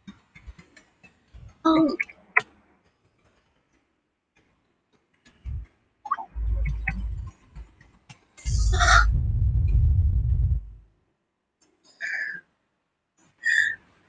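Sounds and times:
dull low rumble: 0:06.3 - 0:07.7, 0:08.4 - 0:10.9
low thump: 0:08.5 - 0:10.8.

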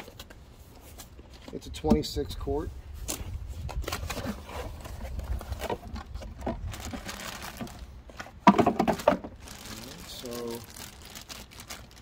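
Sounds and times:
packaging being handled: 0:03.8 - 0:08.2, 0:08.8 - 0:12.0
plastic bag clatter: 0:06.4 - 0:07.9, 0:08.5 - 0:12.0.

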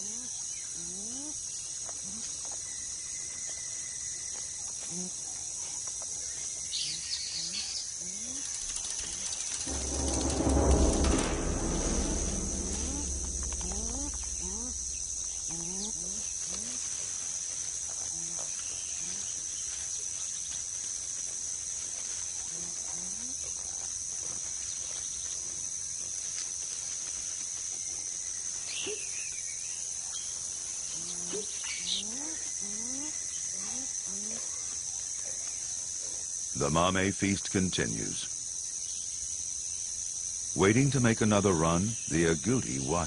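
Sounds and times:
high-pitched insect drone: 0:08.1 - 0:16.2.

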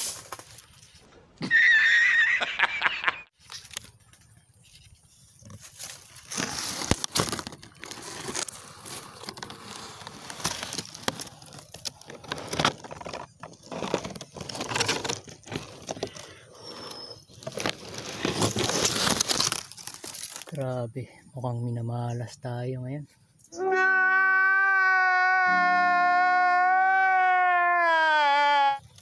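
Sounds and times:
rustling crinkling handling noise: 0:03.4 - 0:16.5, 0:17.2 - 0:20.7.

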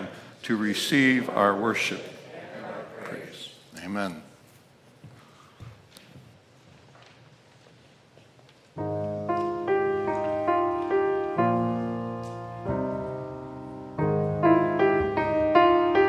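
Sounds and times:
grand piano playing chords: 0:08.8 - 0:16.0.

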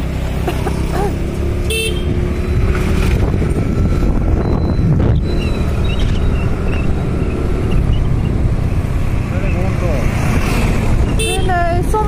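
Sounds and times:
motorbike engine: 0:00.0 - 0:12.0
road noise: 0:00.0 - 0:12.0
wind rumbling on microphone: 0:02.0 - 0:12.0.

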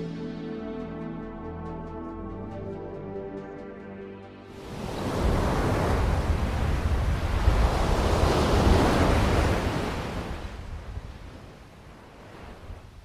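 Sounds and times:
ocean surf washing in: 0:04.5 - 0:13.0
wind buffeting microphone: 0:04.7 - 0:13.0.

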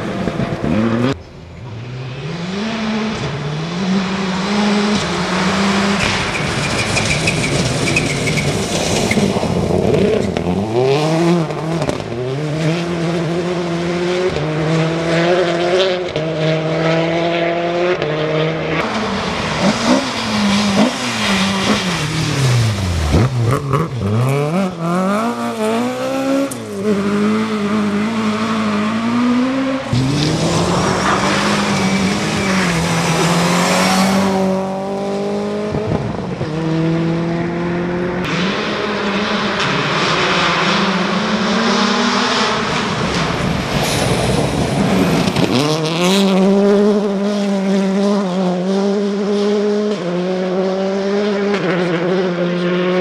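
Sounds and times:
rally car engines revving: 0:00.0 - 0:53.0
car passing by: 0:29.0 - 0:36.2.

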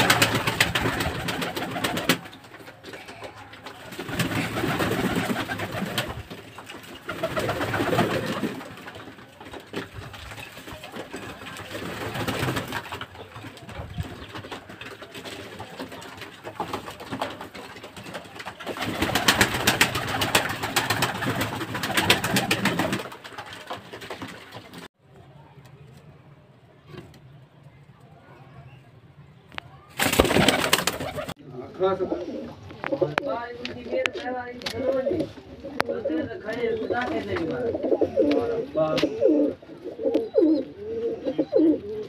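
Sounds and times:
wing flapping: 0:00.0 - 0:24.9, 0:29.8 - 0:31.4
pigeons cooing: 0:30.2 - 0:42.0.

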